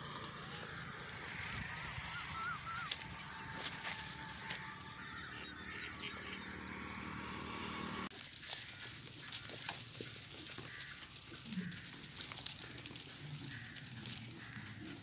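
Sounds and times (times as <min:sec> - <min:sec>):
hooves pattering on dry ground: 0:00.6 - 0:05.7, 0:08.1 - 0:15.0
faint bleats: 0:08.4 - 0:15.0.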